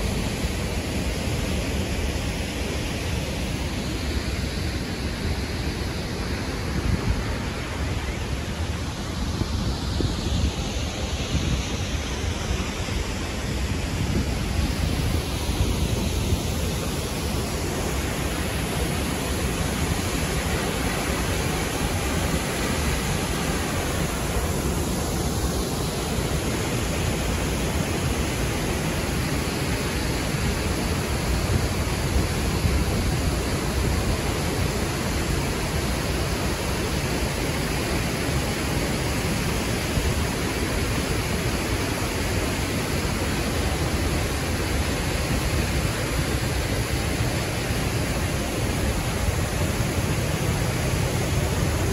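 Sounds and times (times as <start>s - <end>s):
waterfall rushing: 0.0s - 51.9s.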